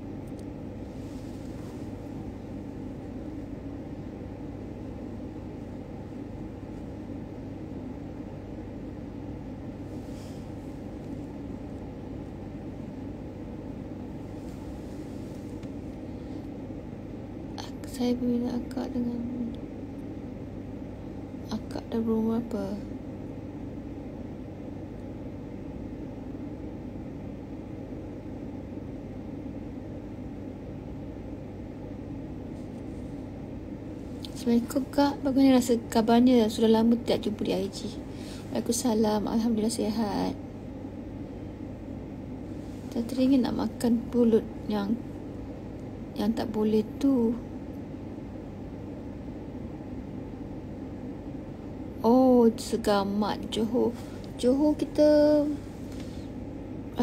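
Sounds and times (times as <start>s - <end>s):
room hum and rumble: 0.0s - 57.0s.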